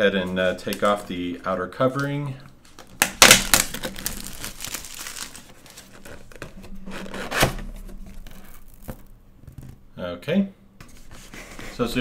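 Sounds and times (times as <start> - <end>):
packaging tearing and crinkling: 2.8 - 9.7.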